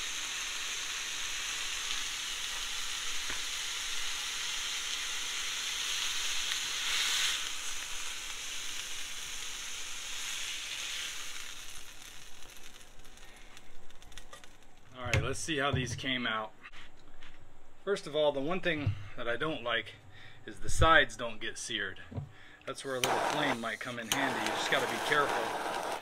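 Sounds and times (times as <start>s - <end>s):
steaks sizzling on hot plate: 0.0s - 14.6s, 23.0s - 26.0s.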